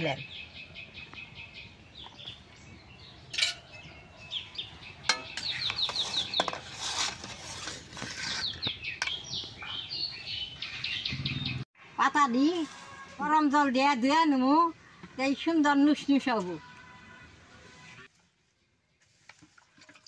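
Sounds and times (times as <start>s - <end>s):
birds chirping: 0.0s - 12.1s.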